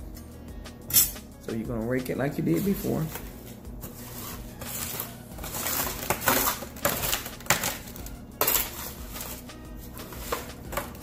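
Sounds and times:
utensil scraping fries in a pan: 2.4 - 11.0.

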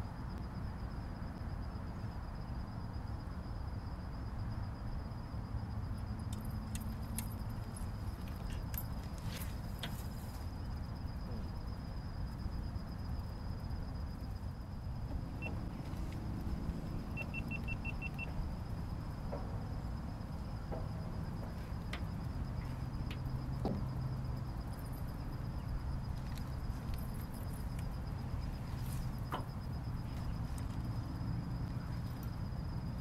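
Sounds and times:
short electronic beeps: 17.1 - 18.3.

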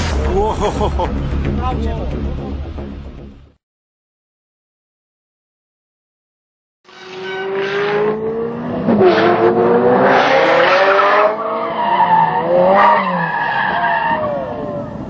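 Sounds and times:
tyres squealing on asphalt: 6.9 - 8.2, 11.3 - 15.0
car engine revving: 7.0 - 13.4.

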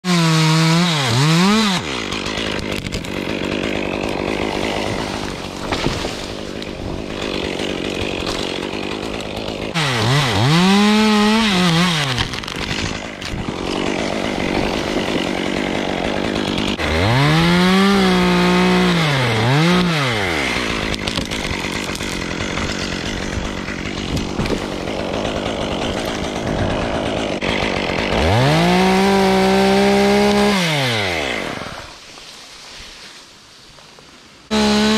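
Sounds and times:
chainsaw revving and idling: 0.0 - 32.0, 34.5 - 34.9.

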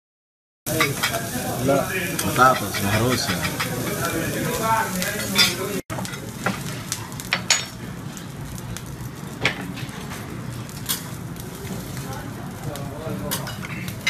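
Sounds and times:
rice sizzling on a griddle: 0.7 - 14.0
metal spatulas scraping and clacking: 2.2 - 3.8, 13.3 - 14.0.

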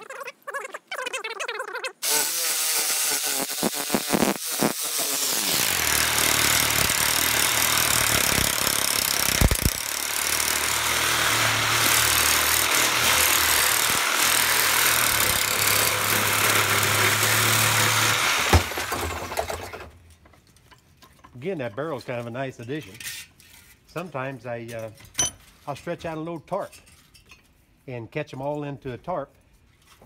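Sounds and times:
reciprocating saw cutting metal: 2.0 - 19.1.

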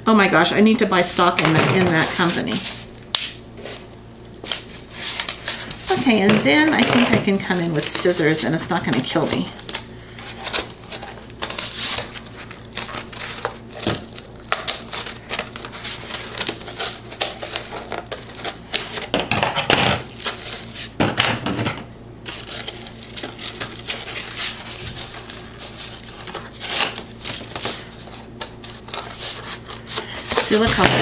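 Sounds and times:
scissors cutting cardboard: 23.5 - 31.0.

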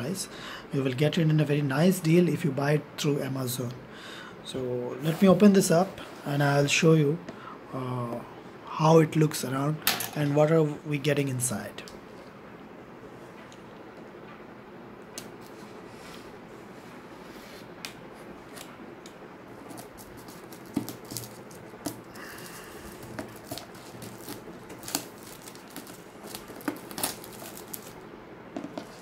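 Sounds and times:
plastic shrink wrap crinkling: 19.6 - 28.0.

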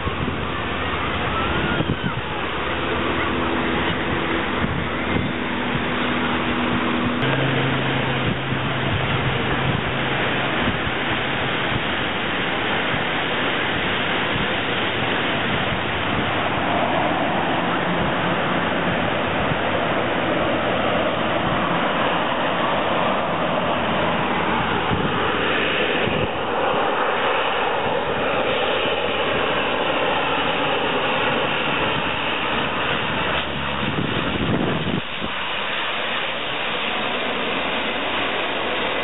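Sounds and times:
turboprop plane engines approaching: 0.0 - 39.0.

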